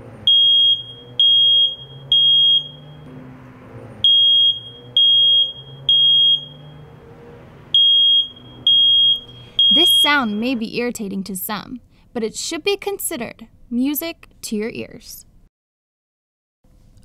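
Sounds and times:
smoke alarm beeping: 0.3s - 3.1s, 4.0s - 6.9s, 7.7s - 10.6s.

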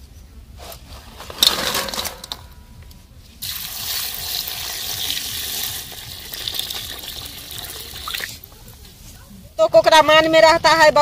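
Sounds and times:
water pouring into pan: 3.4s - 8.4s.

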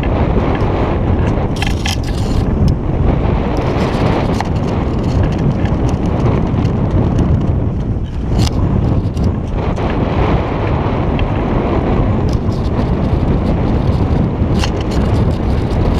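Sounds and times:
wind buffeting microphone: 0.0s - 15.9s
clicks and rattles: 0.6s - 2.8s, 3.6s - 9.9s, 12.3s - 15.9s.

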